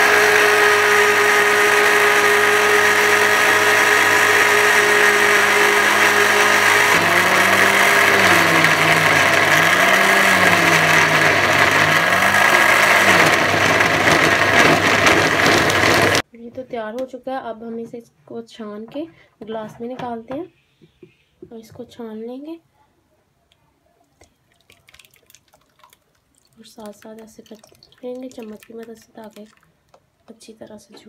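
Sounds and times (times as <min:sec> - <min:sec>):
electric blender running: 0:00.0 - 0:16.2.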